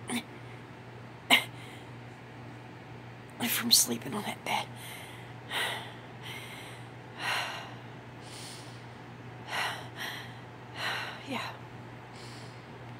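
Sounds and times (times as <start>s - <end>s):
steady low hum: 0.0s - 12.9s
woman breathing heavily: 1.4s - 2.0s, 4.7s - 12.8s.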